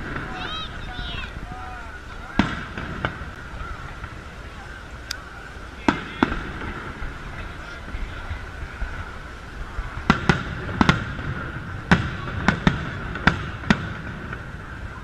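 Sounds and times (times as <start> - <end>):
steady background noise: 0.0 - 15.0
firework shells bursting: 2.3 - 4.3, 5.8 - 9.0, 9.8 - 14.8.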